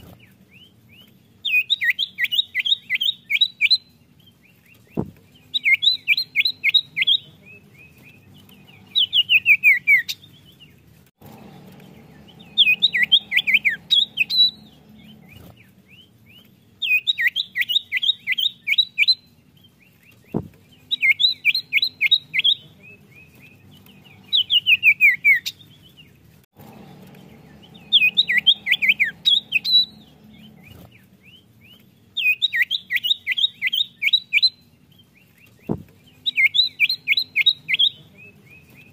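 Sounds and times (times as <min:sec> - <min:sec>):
bird whistling song: 0:00.0 - 0:10.8, 0:11.4 - 0:26.1, 0:26.7 - 0:38.9
faint low hum: 0:04.1 - 0:16.9, 0:19.3 - 0:32.2.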